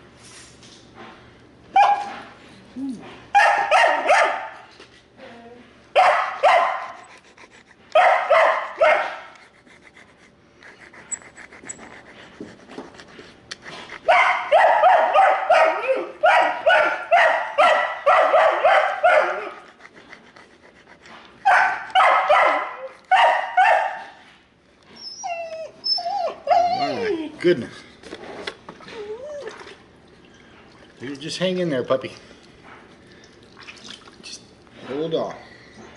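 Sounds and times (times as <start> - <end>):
dog yelping: 1.8 - 2.1, 3.4 - 4.5, 6.0 - 6.8, 7.9 - 9.2, 14.1 - 19.8, 21.4 - 24.1, 25.0 - 27.4, 28.9 - 29.6.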